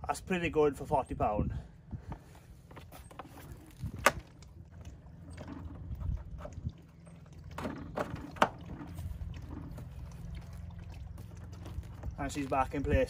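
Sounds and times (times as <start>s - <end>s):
plastic handling noise: 2.1s - 6.5s.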